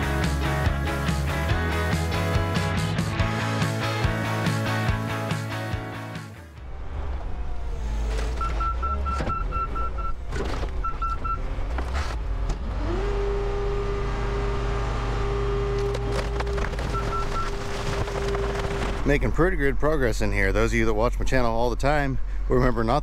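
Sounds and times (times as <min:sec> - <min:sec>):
car crusher engine and hydraulics: 0:06.6 - 0:20.0
reversing alarm beeping: 0:08.4 - 0:10.2.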